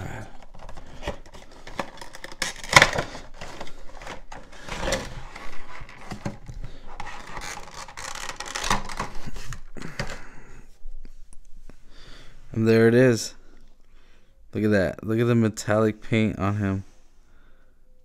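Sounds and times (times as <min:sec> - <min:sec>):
plastic packaging crinkling: 0:00.2 - 0:10.2
packaging clicks: 0:00.4 - 0:10.2.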